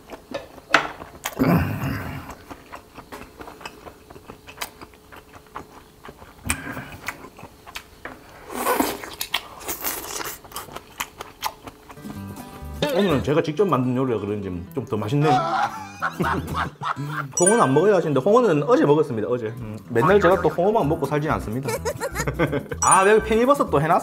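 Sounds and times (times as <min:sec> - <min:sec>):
man chewing food: 0:00.0 - 0:12.8, 0:21.7 - 0:22.9
wet mouth noises: 0:21.7 - 0:22.3.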